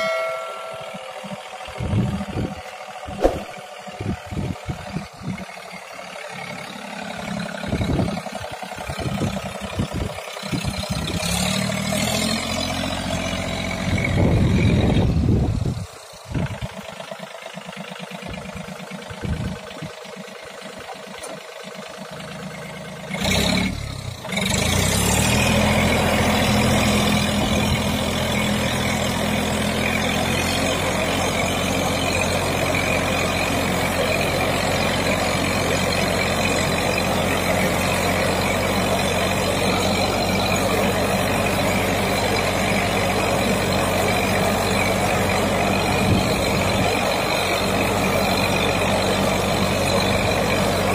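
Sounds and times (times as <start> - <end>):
tractor engine hum: 0.0 - 50.9
sprayer fan rushing air: 3.1 - 3.6.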